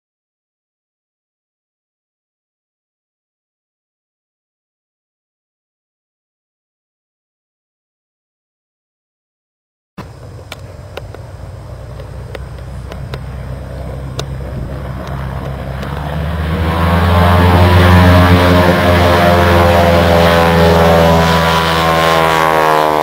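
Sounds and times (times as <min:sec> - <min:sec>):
floatplane engine and propeller droning: 0:10.0 - 0:23.0.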